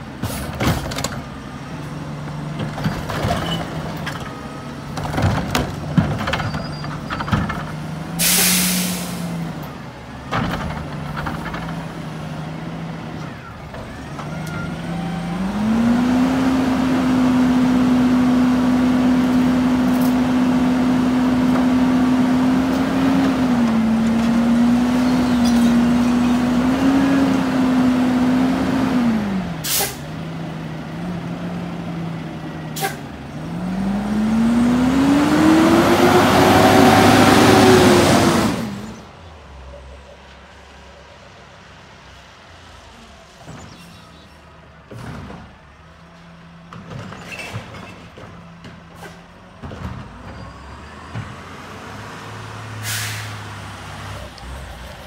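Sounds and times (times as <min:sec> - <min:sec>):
garbage truck diesel engine: 0:00.0 - 0:55.0
air brake hiss: 0:08.2 - 0:09.3, 0:29.6 - 0:30.0, 0:32.8 - 0:33.0, 0:52.8 - 0:53.4.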